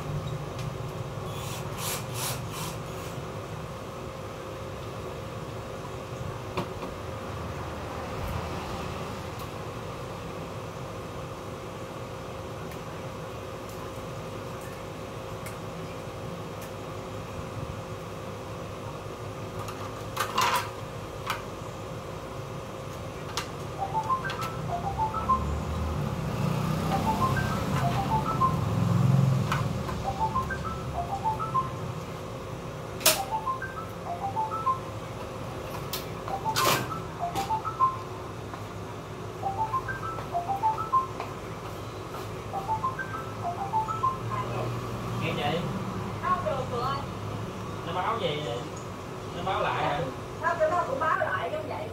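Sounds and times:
photocopier fan humming: 0:00.0 - 0:51.9
light melodic background music: 0:23.8 - 0:32.0, 0:33.2 - 0:35.0, 0:36.3 - 0:38.2, 0:39.4 - 0:41.4, 0:42.5 - 0:44.8.

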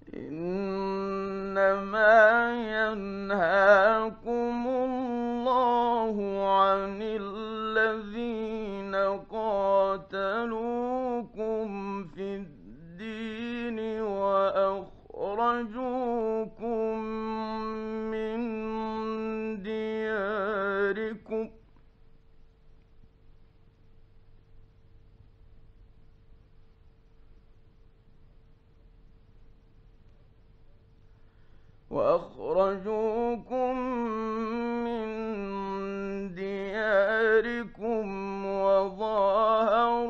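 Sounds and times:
man chanting melodically: 0:00.0 - 0:21.6, 0:31.9 - 0:40.0.

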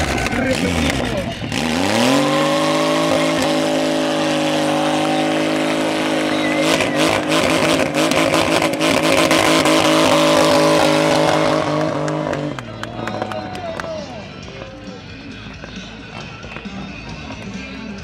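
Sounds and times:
motorcycle engine at high revs: 0:00.0 - 0:12.6.

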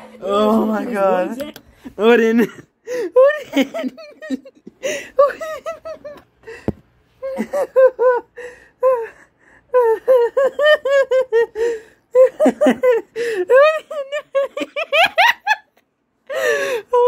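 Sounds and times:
person laughing hard: 0:03.0 - 0:06.2, 0:07.2 - 0:09.1, 0:09.7 - 0:15.7.

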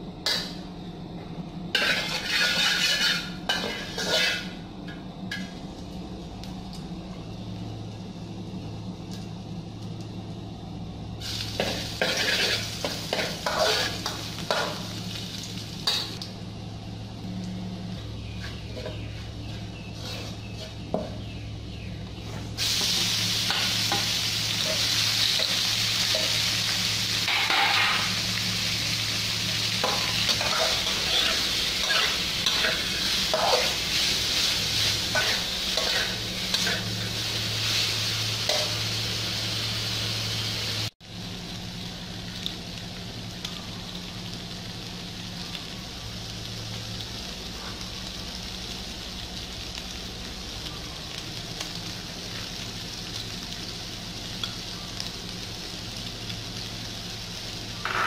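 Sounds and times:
ginger frying in oil: 0:01.6 - 0:58.0
meat sizzling loudly: 0:01.8 - 0:04.6, 0:11.2 - 0:16.2, 0:22.5 - 0:58.0
metal spatula scraping a wok: 0:01.8 - 0:04.6, 0:11.6 - 0:14.7, 0:19.9 - 0:20.8, 0:29.8 - 0:37.9.

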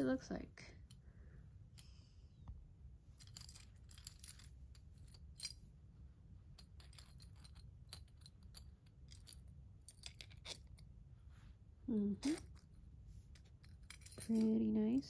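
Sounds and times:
metal key ring clinking: 0:06.6 - 0:10.8, 0:12.2 - 0:12.7, 0:13.4 - 0:14.6.

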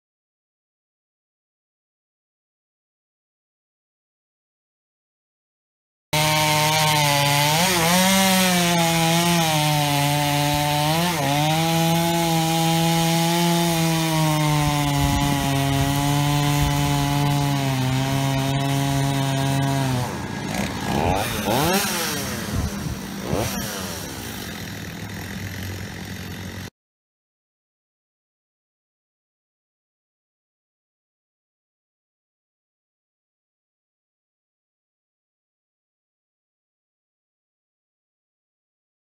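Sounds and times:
chainsaw cutting wood: 0:06.2 - 0:26.7.

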